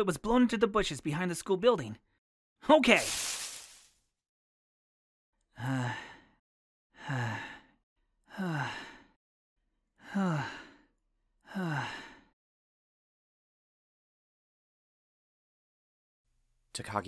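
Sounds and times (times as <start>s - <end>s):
person panting breathlessly: 5.6s - 6.4s, 7.0s - 9.2s, 11.5s - 12.3s.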